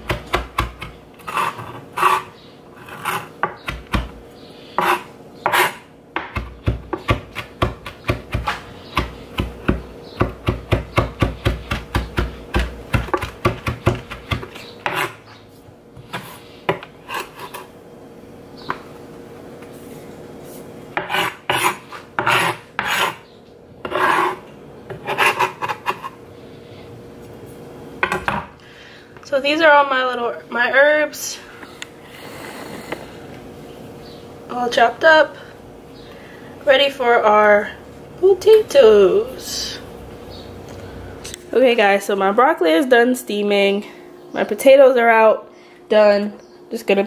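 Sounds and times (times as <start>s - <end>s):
knife chopping herbs on board: 0.0s - 2.2s, 3.0s - 4.2s, 4.8s - 15.2s, 21.0s - 23.2s
knife blade scraping board: 1.2s - 3.6s, 4.8s - 5.8s, 14.4s - 15.4s, 16.0s - 17.7s, 21.0s - 23.2s, 23.8s - 26.2s.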